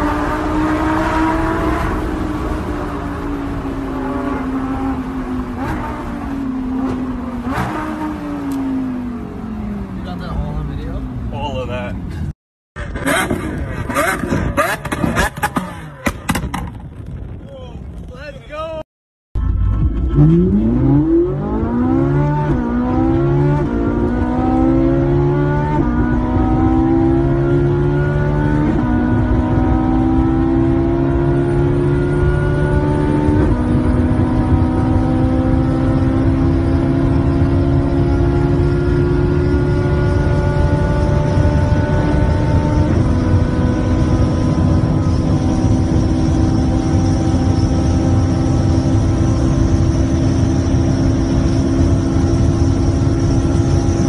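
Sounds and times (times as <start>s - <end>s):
sports car engine accelerating: 0.0s - 16.6s, 19.9s - 54.0s.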